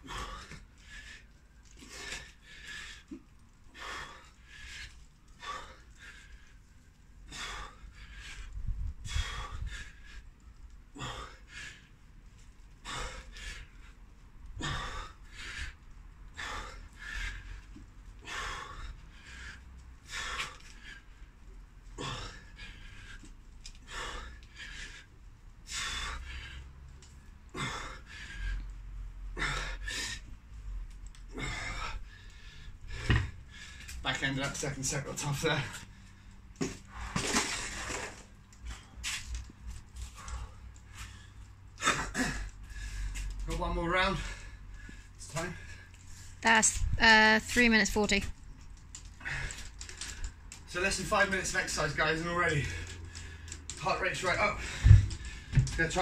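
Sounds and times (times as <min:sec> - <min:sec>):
man breathing hard: 0:00.0 - 0:12.2, 0:12.8 - 0:30.6, 0:31.3 - 0:34.0, 0:39.9 - 0:43.4, 0:44.0 - 0:46.3, 0:54.4 - 0:56.0.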